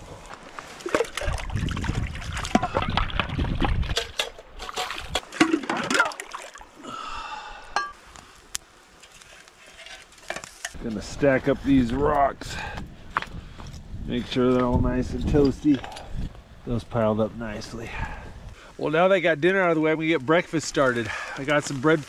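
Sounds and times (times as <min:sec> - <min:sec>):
water splashing and sloshing: 0:00.0 - 0:07.0.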